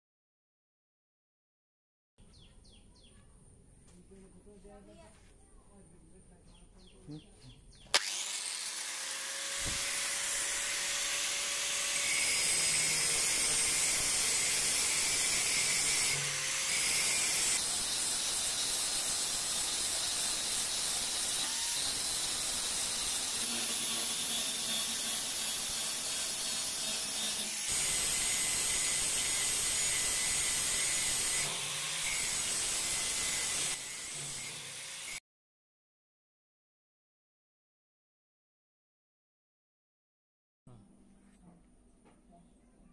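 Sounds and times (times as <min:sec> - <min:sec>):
angle grinder grinding metal: 0:07.9 - 0:35.2.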